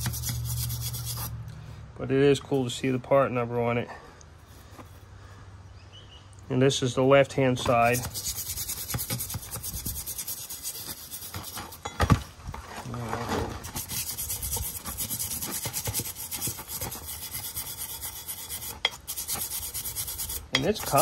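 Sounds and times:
wire brush scrubbing steel: 0.0 - 1.4, 7.6 - 12.0, 13.5 - 21.0.

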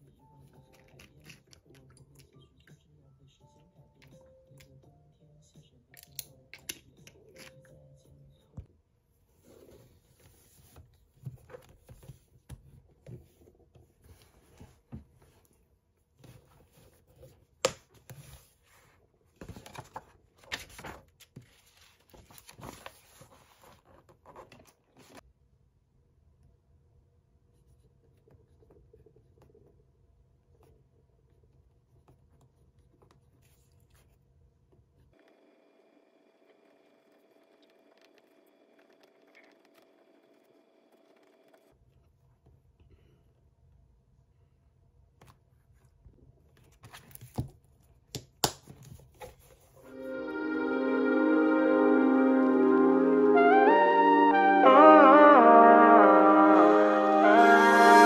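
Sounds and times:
paper pages rustling: 16.2 - 25.2, 46.5 - 47.6.

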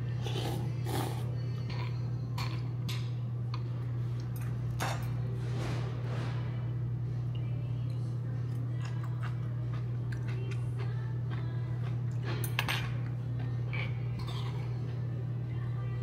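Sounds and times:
steady low hum: 0.0 - 16.0
utensils clinking on dishes: 0.2 - 3.2, 4.3 - 5.8, 11.8 - 14.8.

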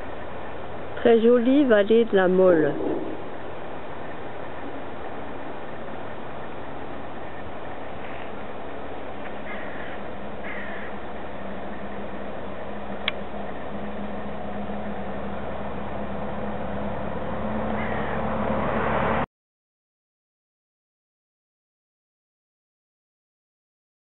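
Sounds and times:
wind rumble: 0.0 - 19.2
low engine-like hum: 0.0 - 19.3
faint bird calls: 9.3 - 11.0, 17.7 - 18.2.

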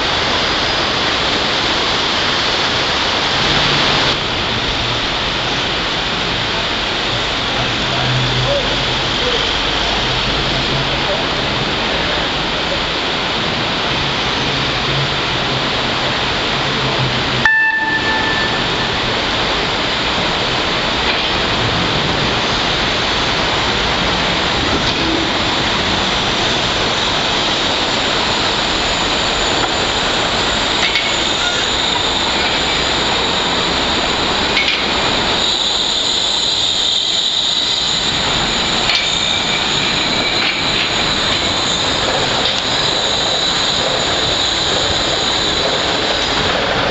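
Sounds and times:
train wheels rumbling on rail: 0.0 - 46.9
high-pitched whine: 17.4 - 46.9.

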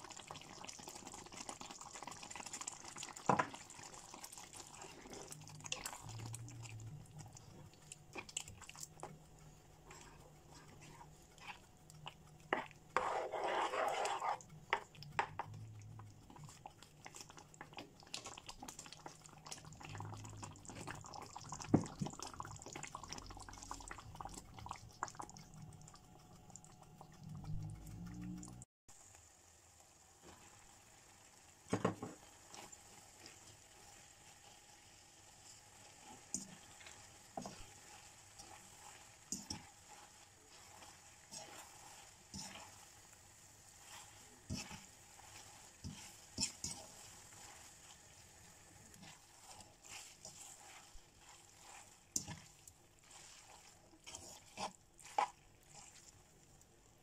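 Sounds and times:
sauce simmering and bubbling: 0.0 - 57.0
spaghetti stirred in sauce: 0.0 - 57.0
utensil tapping and scraping pan: 3.0 - 6.3, 7.2 - 25.6, 31.7 - 33.4, 36.0 - 42.8, 43.8 - 48.1, 48.9 - 56.2.

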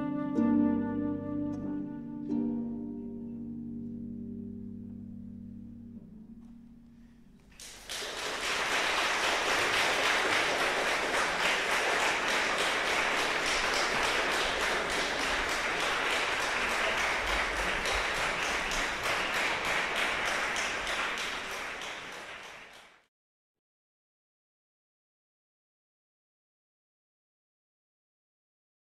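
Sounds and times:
audience applauding: 7.5 - 23.1.

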